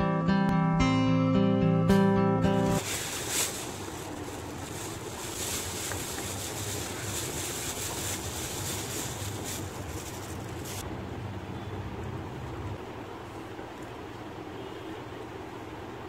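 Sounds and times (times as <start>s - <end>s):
plastic bag crinkling: 2.7s - 10.8s.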